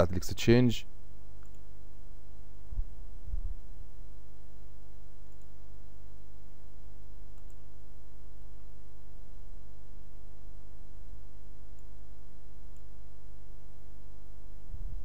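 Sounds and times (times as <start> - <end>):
low electrical hum: 0.0 - 15.0.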